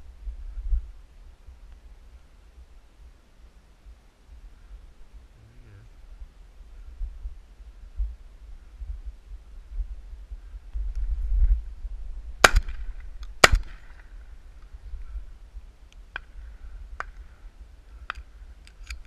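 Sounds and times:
wind rumble on microphone: 0.0s - 3.2s, 3.8s - 19.0s
shotgun shots: 12.4s - 14.0s.

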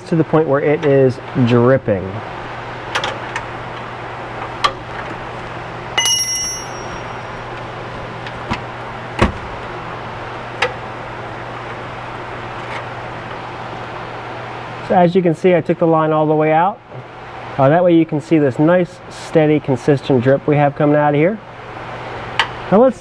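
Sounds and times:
steady hum: 0.0s - 23.0s
bright metallic ring: 6.0s - 7.5s.

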